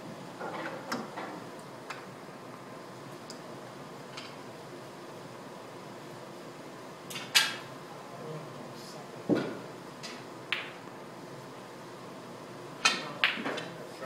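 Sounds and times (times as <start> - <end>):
snooker balls clacking: 12.8 - 13.8.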